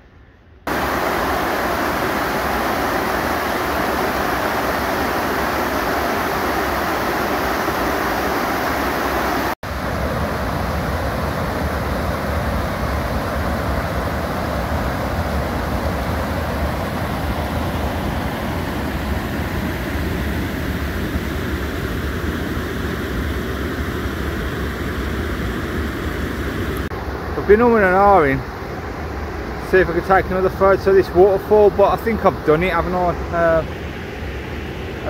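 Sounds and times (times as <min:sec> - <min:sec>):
water rushing over rocks: 0:00.7 - 0:20.2.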